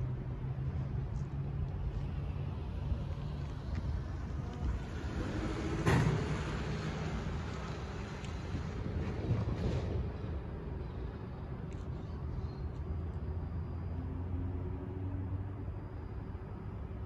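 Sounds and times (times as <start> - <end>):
low traffic rumble: 0.0 - 17.0.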